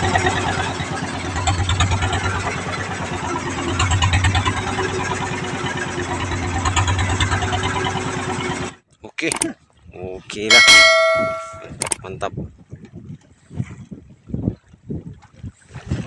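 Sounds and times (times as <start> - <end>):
boat engine running: 0.0 - 9.5, 10.5 - 12.0
water splashing along hull: 0.0 - 16.0.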